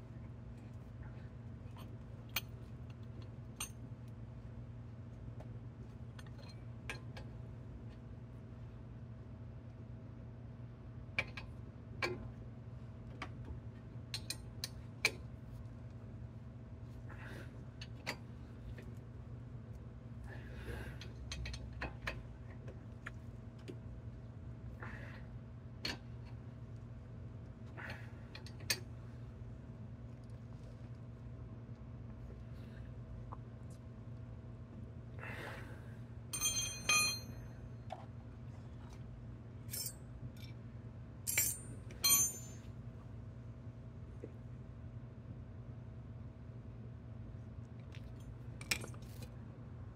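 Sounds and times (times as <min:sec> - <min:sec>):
steady low hum: 0:00.0 - 0:49.9
metal tools clinking: 0:36.4 - 0:37.4, 0:39.7 - 0:39.9, 0:41.3 - 0:42.6.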